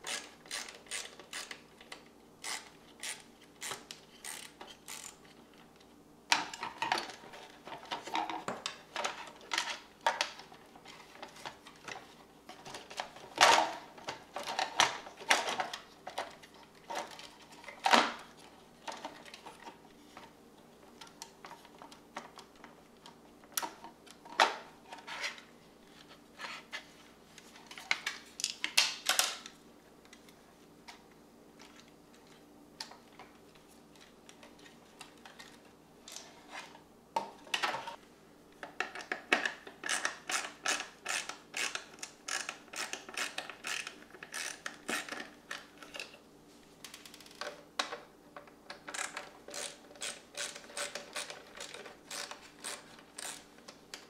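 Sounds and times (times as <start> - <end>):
plastic parts clicking and rattling: 0.0 - 20.3, 33.9 - 38.0, 38.6 - 46.2, 46.8 - 54.0.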